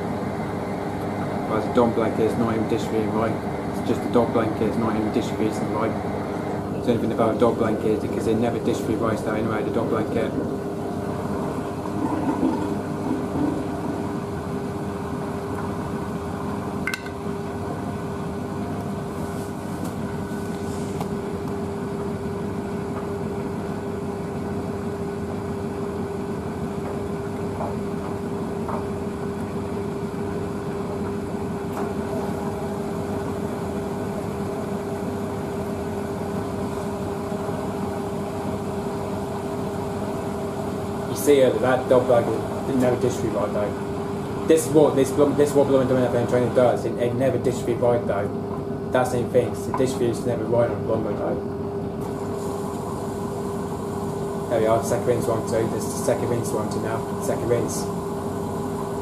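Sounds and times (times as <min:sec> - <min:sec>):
drain pump humming: 0:00.0 - 0:59.0
washing machine drum turning: 0:11.6 - 0:14.4.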